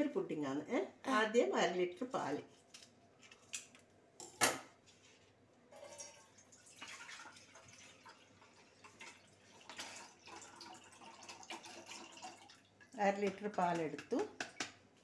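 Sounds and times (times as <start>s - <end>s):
milk pouring into a saucepan: 5.7s - 14.8s.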